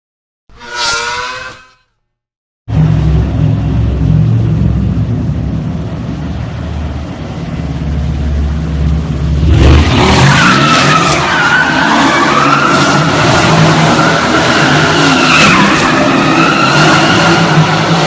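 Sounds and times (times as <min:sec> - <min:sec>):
tyre squeal: 0:00.5 - 0:01.9
car engine rumbling and revving: 0:02.7 - 0:18.0.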